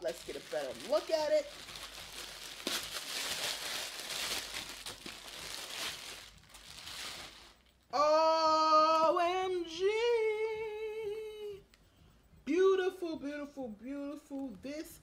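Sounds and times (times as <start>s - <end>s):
plastic packaging crinkling: 0.0s - 7.8s.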